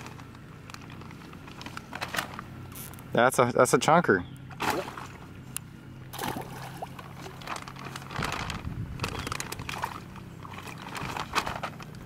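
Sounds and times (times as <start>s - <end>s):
low mechanical hum: 0.0s - 12.0s
water sloshing and splashing: 4.5s - 12.0s.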